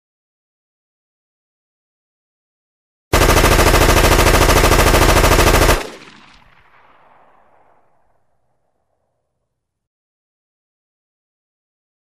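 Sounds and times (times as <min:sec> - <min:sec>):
automatic rifle fire: 0:03.2 - 0:08.6
gunfire echo: 0:03.2 - 0:09.3.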